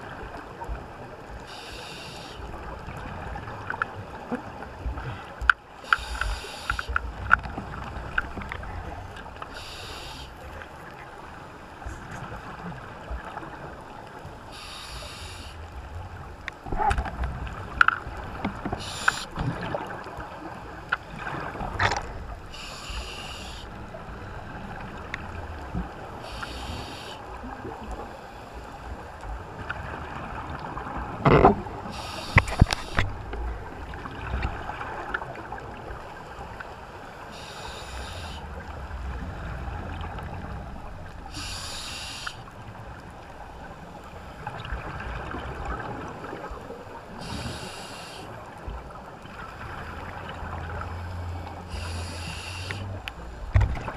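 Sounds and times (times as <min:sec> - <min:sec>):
low underwater rumble: 0:38.4 - 0:41.6, 0:48.6 - 0:53.9.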